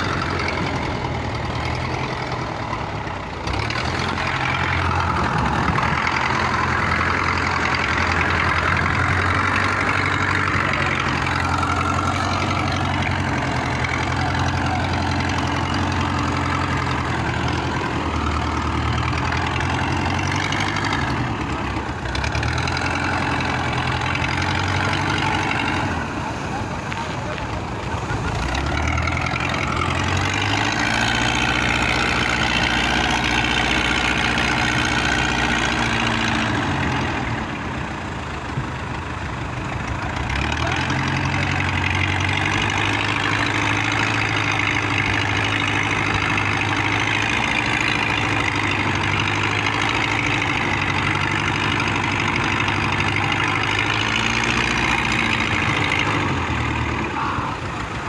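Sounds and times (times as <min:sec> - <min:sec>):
boat engine running: 0:00.0 - 0:58.0.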